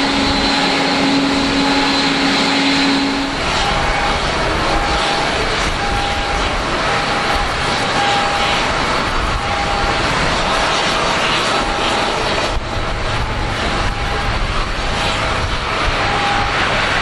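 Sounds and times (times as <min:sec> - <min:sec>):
jet turbine whine: 0:00.0 - 0:17.0.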